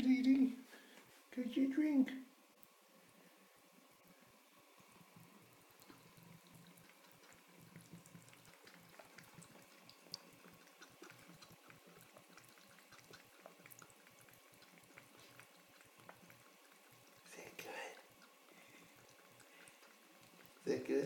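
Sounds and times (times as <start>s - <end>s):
cat lapping water: 4.6s - 21.0s
faucet water trickling: 4.7s - 21.0s.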